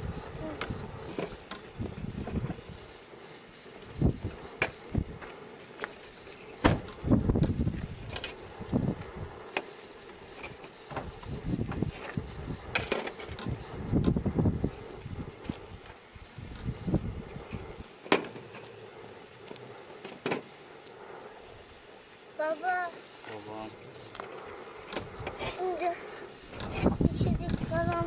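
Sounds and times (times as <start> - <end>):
wind gusting on microphone: 0.0 - 2.9, 3.8 - 5.2, 6.7 - 9.5, 10.9 - 17.8, 24.8 - 25.5, 26.4 - 28.0.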